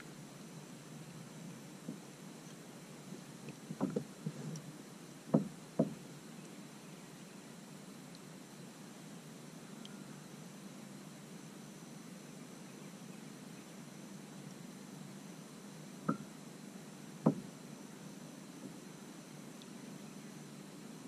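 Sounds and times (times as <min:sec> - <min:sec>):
quiet background hiss: 0:00.0 - 0:21.0
sharp knocks: 0:05.3 - 0:06.0, 0:17.3 - 0:17.5.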